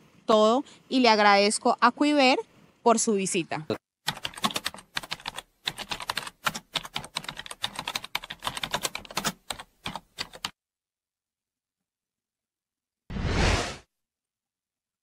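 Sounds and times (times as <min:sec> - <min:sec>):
keystroke clicks: 0:04.1 - 0:10.5.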